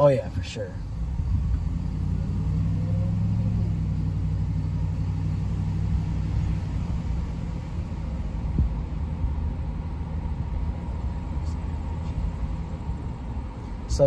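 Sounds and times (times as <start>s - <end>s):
car engine hum: 0.0s - 14.0s
tyres rumbling on road: 0.0s - 14.0s.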